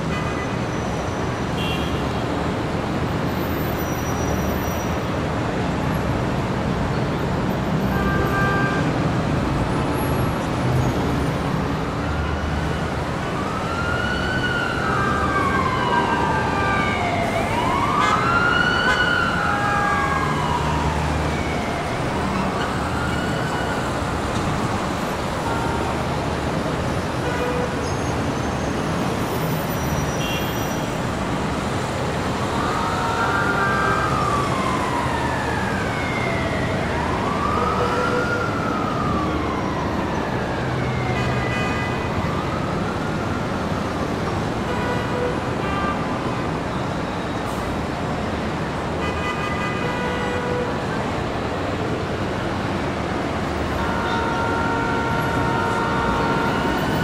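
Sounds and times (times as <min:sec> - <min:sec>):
city traffic rumble: 0:00.0 - 0:57.0
siren wailing: 0:11.7 - 0:26.3, 0:32.3 - 0:44.5, 0:53.7 - 0:57.0.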